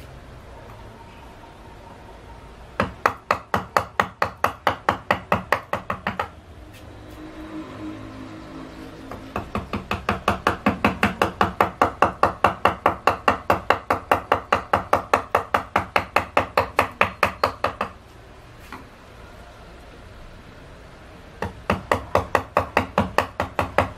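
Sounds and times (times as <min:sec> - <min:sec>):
chisel tapping into wood: 0:09.1 - 0:18.0, 0:21.4 - 0:23.9.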